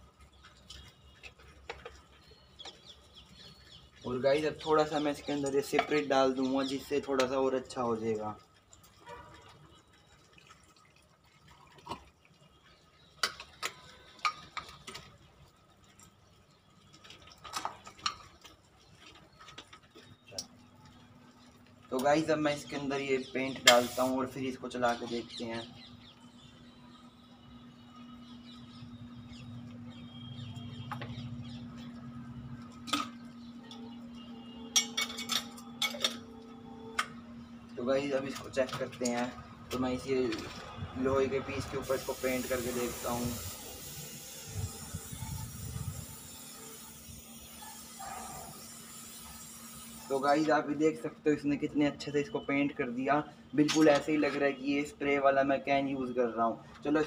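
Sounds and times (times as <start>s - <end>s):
liquid pouring between bottles: 0.0s - 25.8s, 38.1s - 50.7s.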